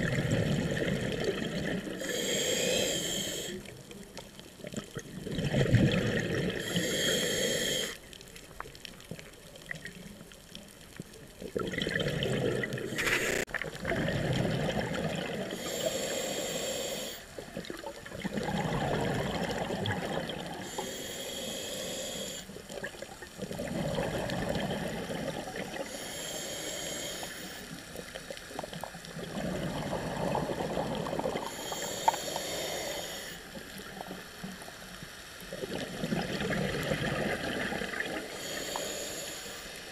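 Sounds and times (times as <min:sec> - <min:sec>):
burble of exhaled bubbles: 0:00.0 - 0:02.0, 0:04.6 - 0:06.7, 0:11.4 - 0:15.6, 0:17.4 - 0:20.7, 0:22.7 - 0:25.9, 0:28.0 - 0:31.7, 0:35.5 - 0:38.4
regulator hiss on inhale: 0:02.0 - 0:04.0, 0:06.6 - 0:08.1, 0:12.9 - 0:13.5, 0:15.5 - 0:17.4, 0:20.5 - 0:22.7, 0:25.7 - 0:28.3, 0:31.2 - 0:34.6, 0:38.2 - 0:39.9.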